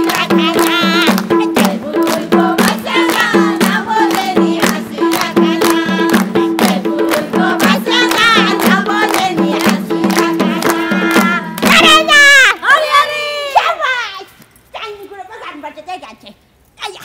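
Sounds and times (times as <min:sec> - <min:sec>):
steady drum beat: 0:00.0 - 0:12.4
folk song singing: 0:00.0 - 0:13.0.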